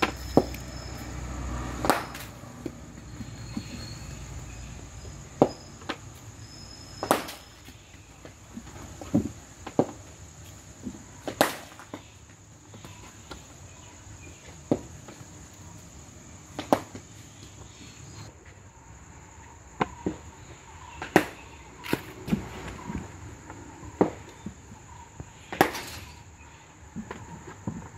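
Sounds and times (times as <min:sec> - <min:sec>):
cricket bat striking ball: 0:01.7 - 0:02.8, 0:05.4 - 0:06.1, 0:07.0 - 0:07.8, 0:11.0 - 0:12.1, 0:16.6 - 0:17.1, 0:20.9 - 0:22.5, 0:25.5 - 0:26.1.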